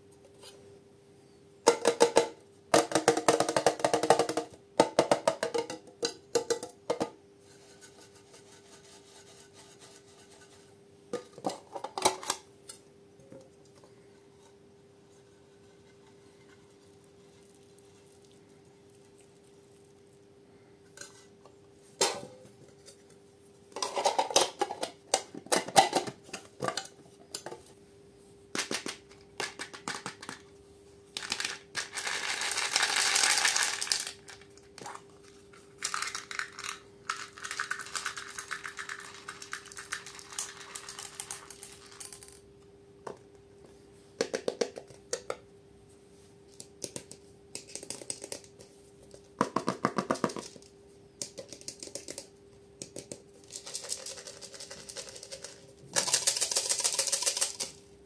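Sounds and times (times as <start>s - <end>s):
faint steady hum: 0.0s - 58.0s
plastic tubs clicking and tapping: 1.7s - 7.2s, 28.6s - 30.5s, 44.2s - 45.4s, 46.6s - 53.2s.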